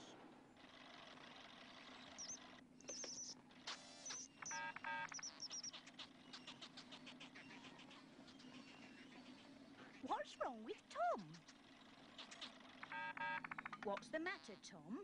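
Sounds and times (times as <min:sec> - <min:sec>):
rapid electronic bleeping: 0:01.9 - 0:07.8, 0:11.4 - 0:14.6
cartoon mouse squeaks: 0:04.1 - 0:14.8
quick ticks: 0:11.2 - 0:14.1.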